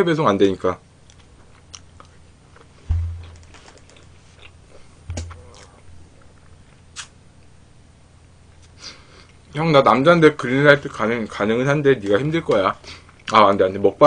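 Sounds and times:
dull low thumps: 0:02.9 - 0:03.6, 0:05.1 - 0:05.5.

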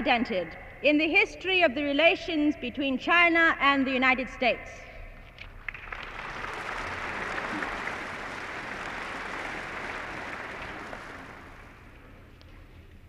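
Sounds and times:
audience applauding: 0:05.6 - 0:12.3.

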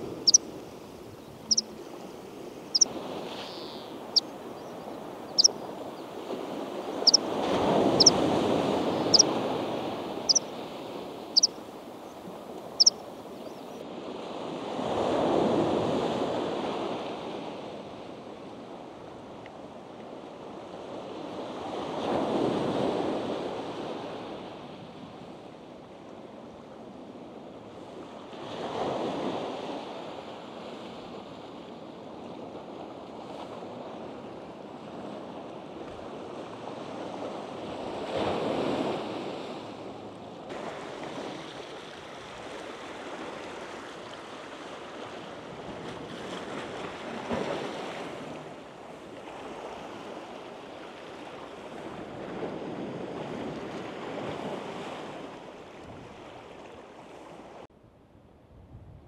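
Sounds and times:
sea waves on rocky shore: 0:40.5 - 0:57.5.

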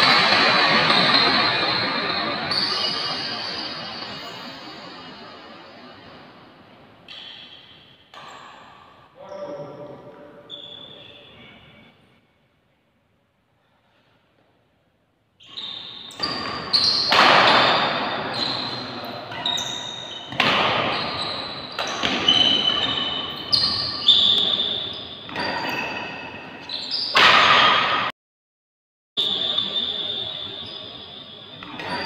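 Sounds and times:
racket hitting shuttlecock: 0:16.2 - 0:18.0, 0:20.3 - 0:20.9.

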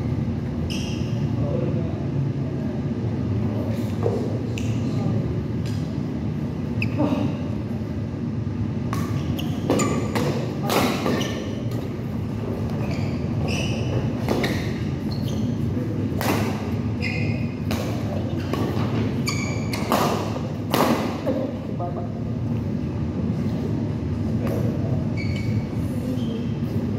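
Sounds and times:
low hall hum: 0:00.0 - 0:26.9
shoes squeaking on floor: 0:00.6 - 0:01.3, 0:09.2 - 0:15.9, 0:16.9 - 0:20.3, 0:25.1 - 0:26.6
racket hitting shuttlecock: 0:08.9 - 0:11.9, 0:19.7 - 0:21.4.

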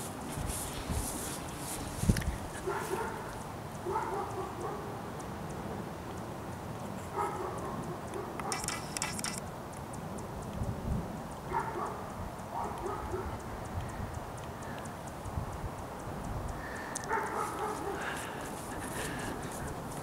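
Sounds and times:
dog barking: 0:02.6 - 0:05.1, 0:07.1 - 0:08.6, 0:11.5 - 0:13.4, 0:17.0 - 0:18.4
camera handling noise: 0:08.4 - 0:09.5.

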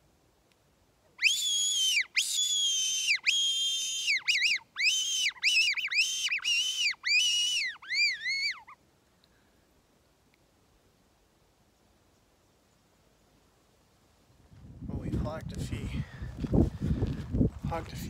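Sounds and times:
deer call whistling: 0:01.2 - 0:08.8.

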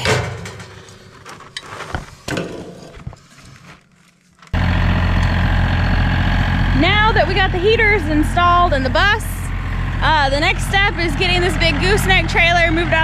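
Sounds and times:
vehicle engine idling: 0:04.6 - 0:13.0.

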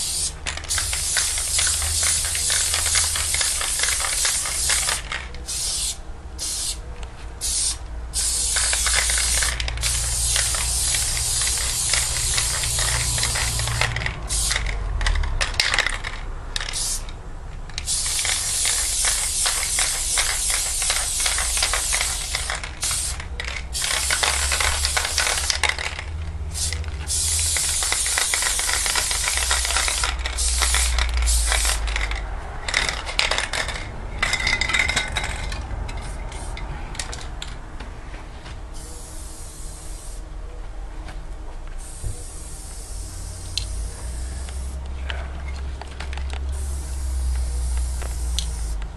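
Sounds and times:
spray paint can hissing: 0:00.0 - 0:06.8, 0:07.4 - 0:17.1, 0:17.8 - 0:35.4, 0:38.8 - 0:40.2, 0:41.8 - 0:44.8, 0:46.4 - 0:48.8.

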